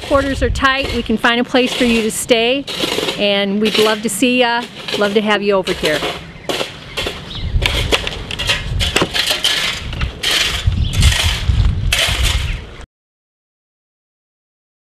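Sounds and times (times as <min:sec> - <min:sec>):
footsteps on gravel: 0:00.0 - 0:12.5
low rumble on microphone: 0:06.9 - 0:12.8.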